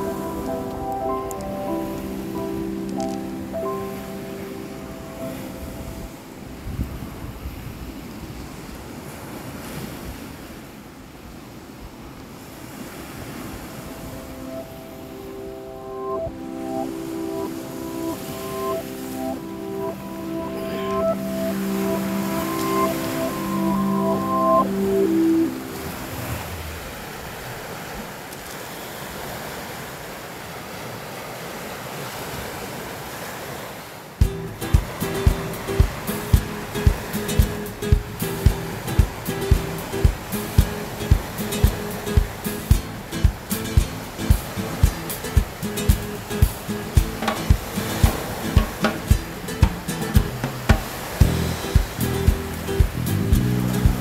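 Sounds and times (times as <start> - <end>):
background music: 0.0 - 6.7, 14.0 - 26.8, 34.2 - 54.0
waves washing onto stony beach: 0.0 - 15.6, 16.2 - 54.0
wind on microphone: 5.5 - 10.3, 46.4 - 54.0
wind buffeting microphone: 5.6 - 10.2, 34.2 - 54.0
drum hits: 34.2 - 54.0.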